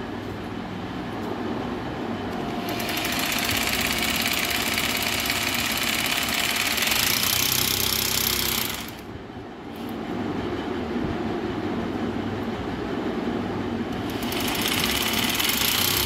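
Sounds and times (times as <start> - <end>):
hammer drill boring into wall: 2.6 - 9.0, 14.0 - 16.0.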